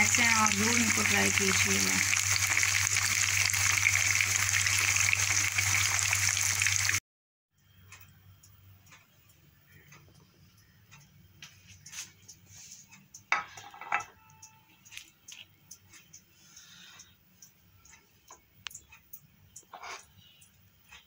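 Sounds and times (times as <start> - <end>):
hot oil sizzling: 0.0 - 7.0
faint clicks and ticks: 7.6 - 13.3, 14.2 - 21.0.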